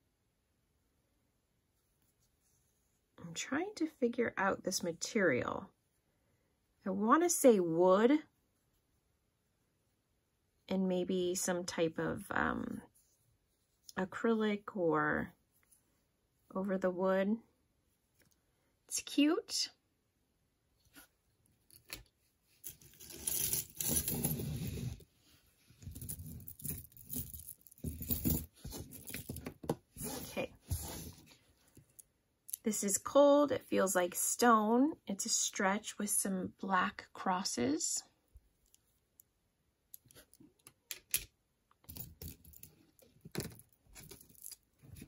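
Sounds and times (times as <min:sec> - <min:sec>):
jewelry rustling: 0:20.9 - 0:32.1, 0:39.9 - 0:45.0
jewelry chains rattling: 0:22.7 - 0:24.5, 0:25.9 - 0:29.4.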